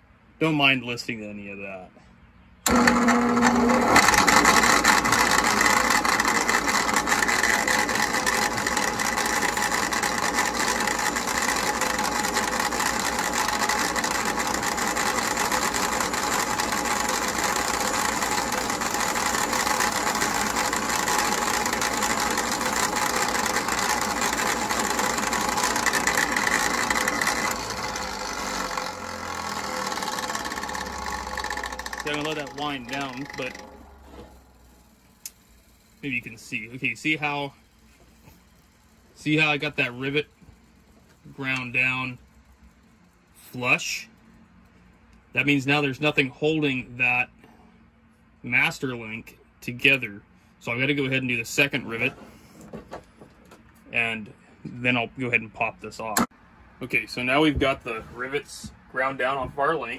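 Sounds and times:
bench grinder whine: 2.6 - 42.3
metal grinding against wheel: 2.7 - 35.0.

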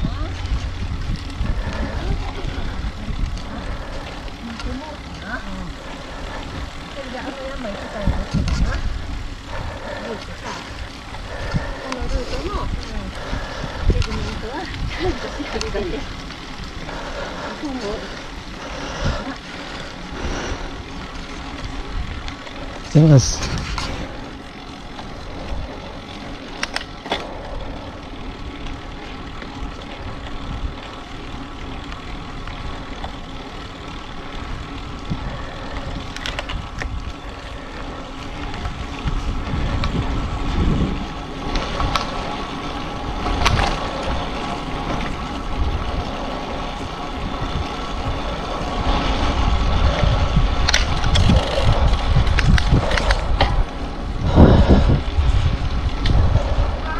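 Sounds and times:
bicycle road noise: 0.0 - 56.9
wind rumble on microphone: 0.0 - 56.9.

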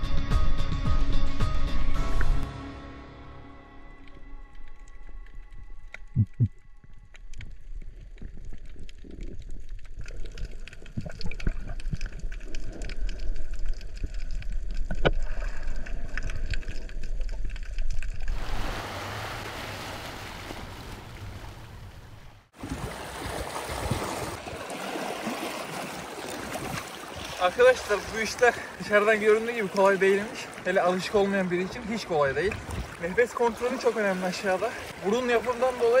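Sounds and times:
underwater clicks and crackles: 4.0 - 18.4, 26.2 - 36.0
low underwater rumble: 4.3 - 18.7
seawater lapping against rock: 7.9 - 36.0.

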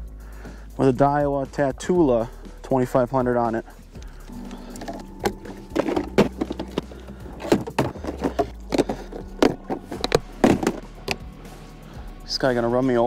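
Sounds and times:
steady low hum: 3.6 - 12.3.

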